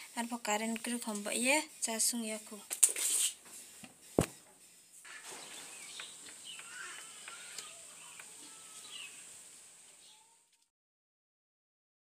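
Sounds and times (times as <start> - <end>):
steady high hiss: 0.0 - 10.7
bird chirps: 5.1 - 9.3.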